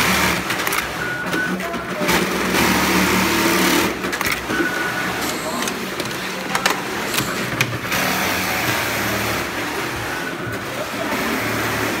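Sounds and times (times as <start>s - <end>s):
sewing machinery whirring: 0.0s - 12.0s
sharp clicks: 4.1s - 4.5s.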